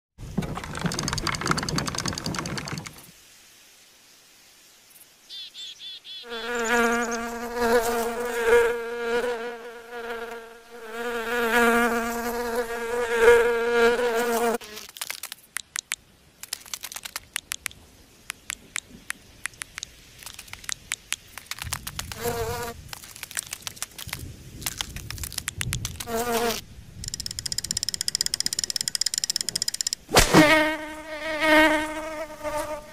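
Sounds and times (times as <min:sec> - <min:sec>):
housefly buzzing: 0:06.2 - 0:15.1, 0:21.3 - 0:32.9
small sharp clicks: 0:14.8 - 0:26.2, 0:27.0 - 0:30.2.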